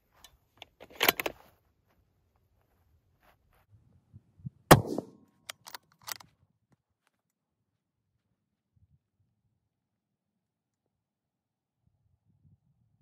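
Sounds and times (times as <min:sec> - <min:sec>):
rifle shot: 0:04.7 - 0:05.2.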